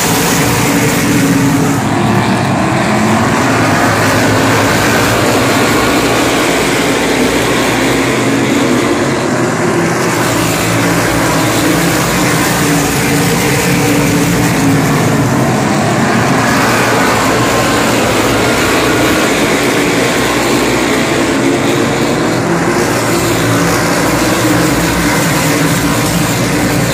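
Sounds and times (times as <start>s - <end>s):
race car engines droning: 0.0s - 26.9s.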